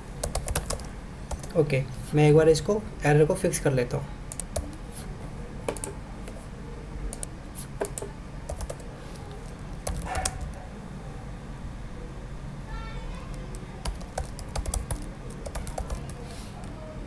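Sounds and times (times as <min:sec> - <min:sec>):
computer keyboard typing: 0:00.2 - 0:01.6, 0:04.3 - 0:04.9, 0:05.7 - 0:06.0, 0:07.1 - 0:08.9, 0:09.5 - 0:10.6, 0:13.4 - 0:16.3.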